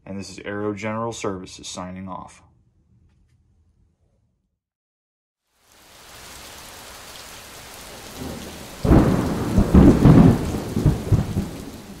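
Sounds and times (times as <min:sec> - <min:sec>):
steady rain hissing: 0:05.4 - 0:12.0
thunder rumbling: 0:07.9 - 0:12.0.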